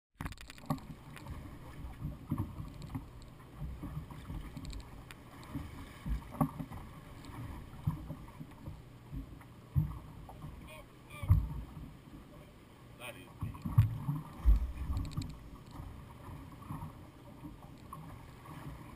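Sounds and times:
water slapping against boat hull: 13.4 - 18.9
low thuds and knocks: 13.8 - 15.3.

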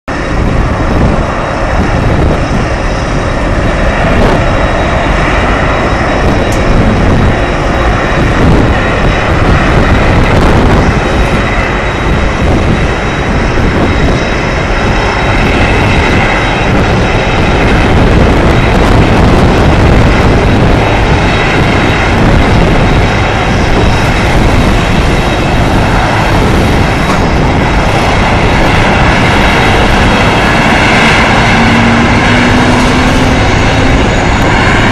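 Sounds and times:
jet airliner taxiing rumble and whine: 0.1 - 34.9.

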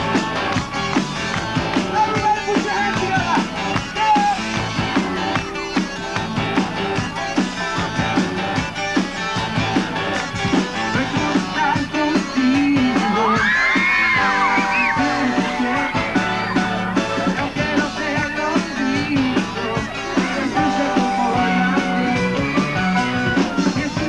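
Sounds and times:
drums: 0.0 - 24.0
electric guitar: 0.0 - 24.0
rock band music: 0.0 - 24.0.

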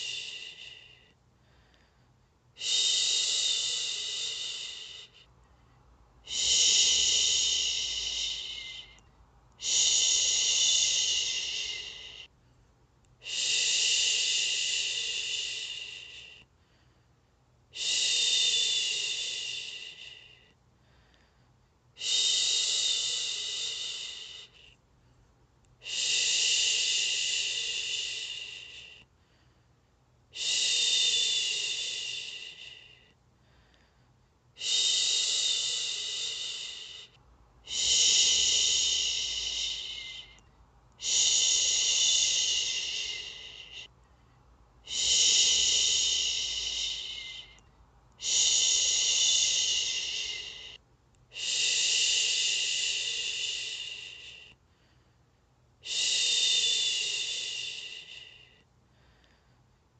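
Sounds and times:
woman shushing: 6.3 - 9.0, 9.6 - 12.2, 37.7 - 40.4, 41.0 - 43.9, 44.9 - 47.6, 48.2 - 50.8.

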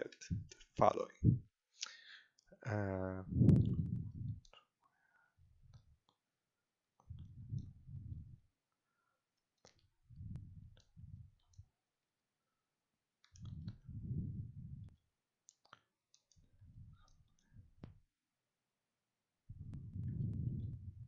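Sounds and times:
low muffled rumble: 3.2 - 4.5, 7.1 - 8.4, 10.1 - 11.3, 13.4 - 14.9, 19.5 - 21.0
faint clicks: 13.2 - 13.8.

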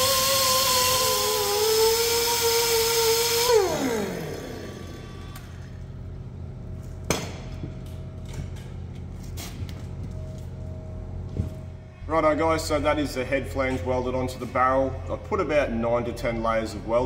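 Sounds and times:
power tool whining: 0.0 - 6.0
low hum: 0.0 - 17.0.

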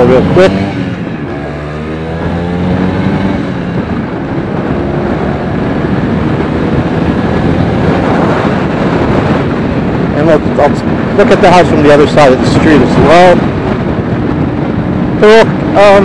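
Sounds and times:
scooter engine accelerating: 0.0 - 9.5
wind rushing on microphone: 0.0 - 16.0.

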